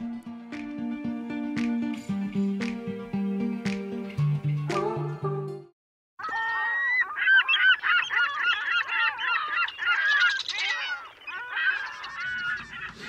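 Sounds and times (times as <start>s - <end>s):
geese honking: 6.2s - 13.0s.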